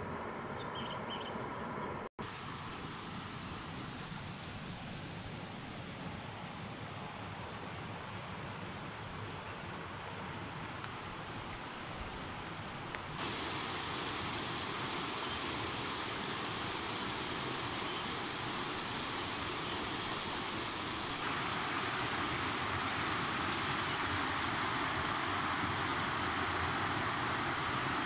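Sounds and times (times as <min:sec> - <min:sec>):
stream flowing over rocks: 0:09.7 - 0:28.0.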